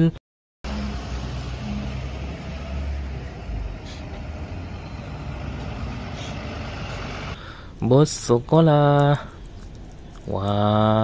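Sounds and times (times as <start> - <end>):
bus engine rumble: 0.6 - 7.6
road noise: 0.6 - 10.5.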